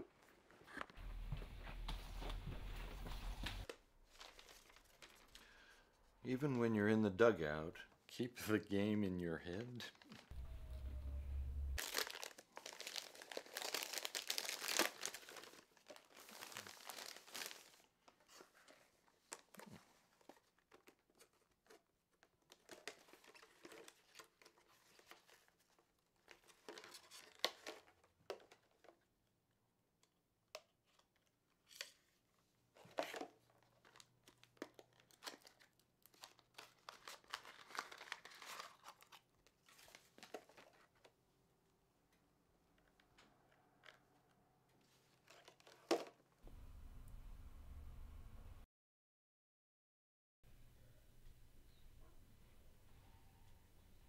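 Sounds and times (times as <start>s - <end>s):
plastic packaging crinkling and tearing: 4.0s - 5.4s, 11.8s - 18.2s, 22.4s - 28.0s, 32.8s - 41.1s.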